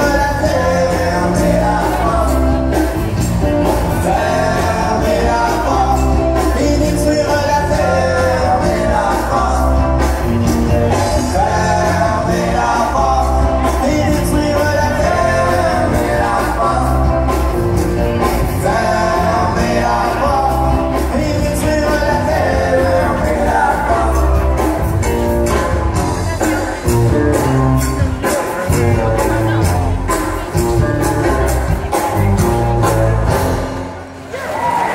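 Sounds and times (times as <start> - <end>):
steady drum beat: 0.0 - 34.0
lead singer: 0.0 - 34.9
live country rock band: 0.0 - 34.9.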